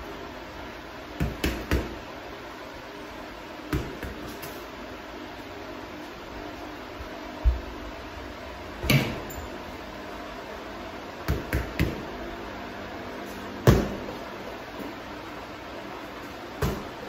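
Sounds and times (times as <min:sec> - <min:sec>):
punches hitting punching bags: 0:01.2 - 0:02.0, 0:11.2 - 0:12.1, 0:13.6 - 0:14.1, 0:16.6 - 0:17.0.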